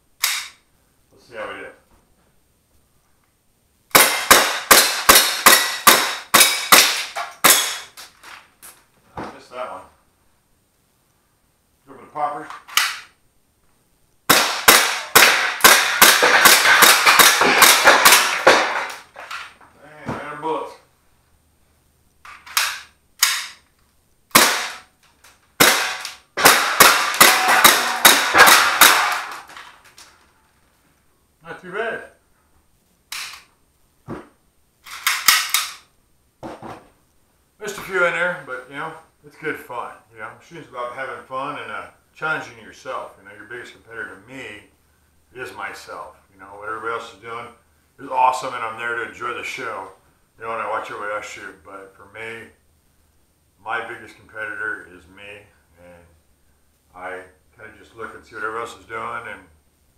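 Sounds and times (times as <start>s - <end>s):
airsoft pistol shots: 0.2s - 0.6s, 3.9s - 8.0s, 14.3s - 19.0s, 24.3s - 24.9s, 25.6s - 29.5s.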